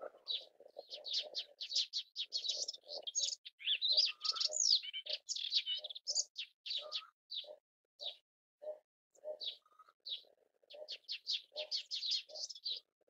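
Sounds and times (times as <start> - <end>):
warbler singing: 0.0 - 13.0.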